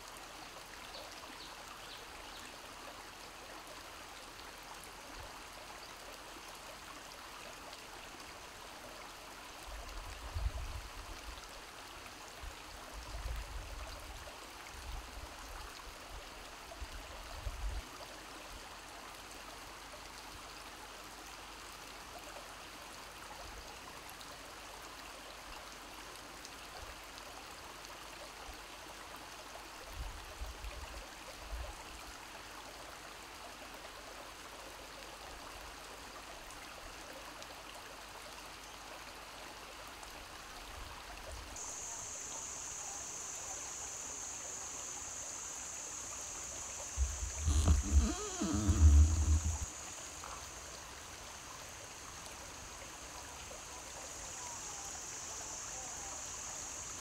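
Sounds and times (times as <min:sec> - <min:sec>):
stream babbling over stones: 0:00.0 - 0:57.0
low rumbling bumps: 0:47.0 - 0:49.7.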